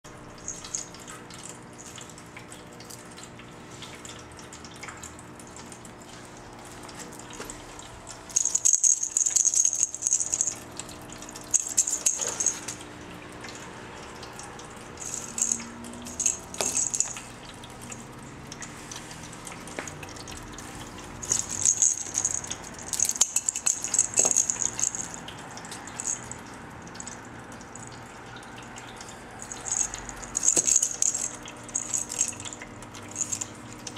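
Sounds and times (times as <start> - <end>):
faint steady hum: 0.1 - 33.9
plastic ball toy rattling and jingling: 0.4 - 1.0, 8.3 - 12.8, 15.0 - 18.1, 20.6 - 28.0, 29.4 - 33.9.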